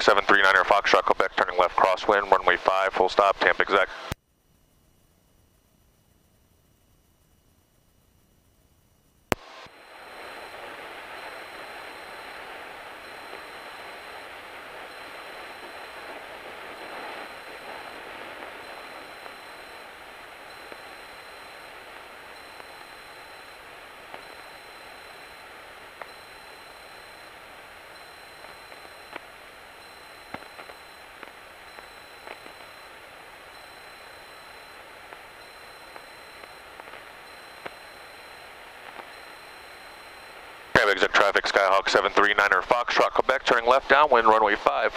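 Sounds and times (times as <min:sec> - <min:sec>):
steady radio hiss: 0:00.0 - 0:44.9
small clicks: 0:14.9 - 0:27.3, 0:28.0 - 0:40.4.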